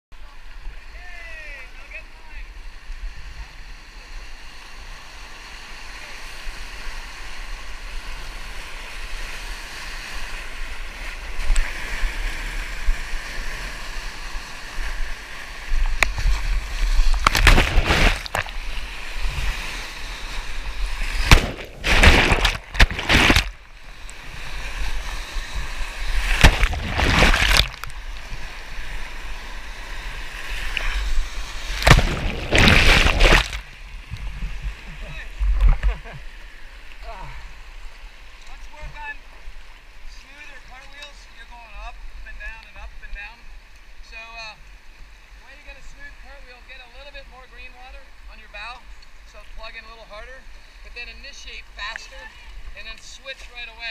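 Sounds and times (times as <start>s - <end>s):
water crashes with gurgling: 0.2s - 53.9s
whitewater rushing: 16.2s - 29.2s, 30.7s - 33.8s.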